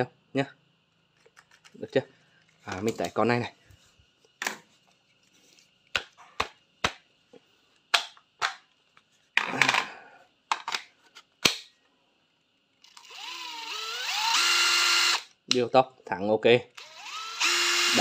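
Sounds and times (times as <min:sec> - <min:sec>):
plastic clicks of tool handling: 0:01.2 - 0:01.8
impact driver motor whine: 0:12.9 - 0:15.3, 0:16.8 - 0:18.0.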